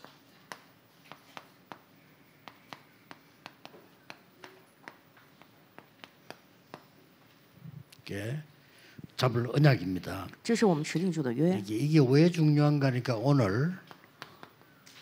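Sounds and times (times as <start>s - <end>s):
light sharp clicks and taps: 0.0s - 6.9s.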